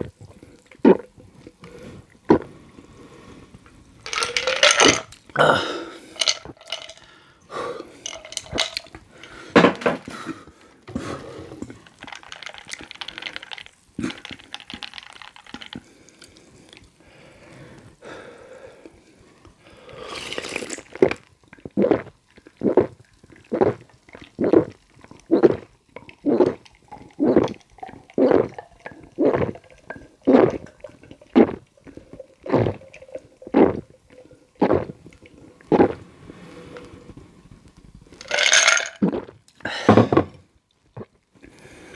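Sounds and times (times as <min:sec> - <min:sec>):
person gulping: 0:00.0 - 0:02.6, 0:04.0 - 0:15.9, 0:20.0 - 0:36.0, 0:38.2 - 0:41.6
soda being poured: 0:00.0 - 0:09.5, 0:11.2 - 0:17.0, 0:19.8 - 0:40.3
ice cubes clinking against glass: 0:04.1 - 0:05.2, 0:06.2 - 0:07.1, 0:08.0 - 0:08.9, 0:38.2 - 0:39.0.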